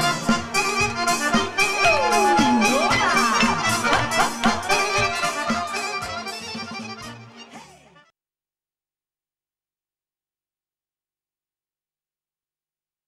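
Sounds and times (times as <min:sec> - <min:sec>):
folk band playing: 0:00.0 - 0:07.7
accordion: 0:00.0 - 0:08.1.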